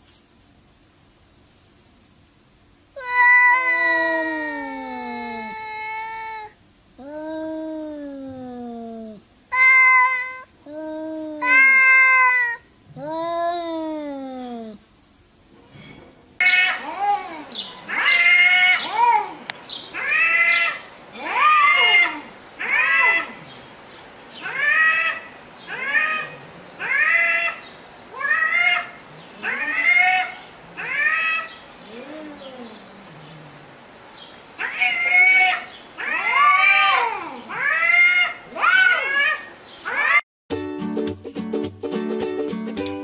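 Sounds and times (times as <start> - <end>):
cat meowing: 3.0 - 8.0, 20.0 - 23.4, 24.4 - 32.8, 34.6 - 40.2.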